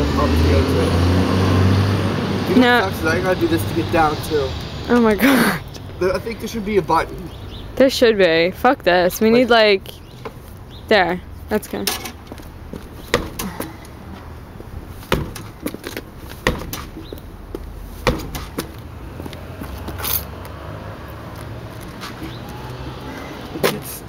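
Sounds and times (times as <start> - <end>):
sneaker kicking car tire: 12.7 - 13.8, 15.0 - 20.1.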